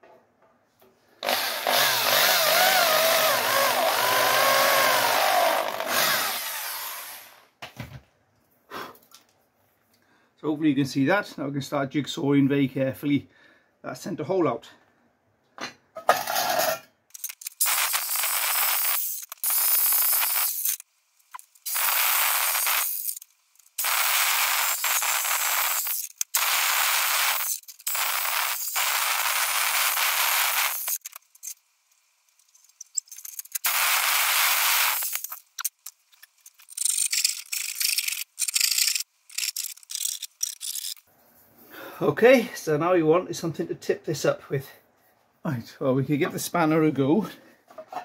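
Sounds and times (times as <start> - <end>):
electric jigsaw cutting metal: 1.2 - 7.5, 17.2 - 31.2, 33.5 - 35.8.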